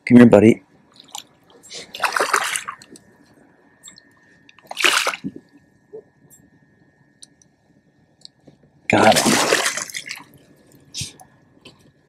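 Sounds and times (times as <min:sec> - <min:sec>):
fish splashing at surface: 0:01.0 - 0:02.9, 0:04.6 - 0:05.5, 0:09.0 - 0:10.4.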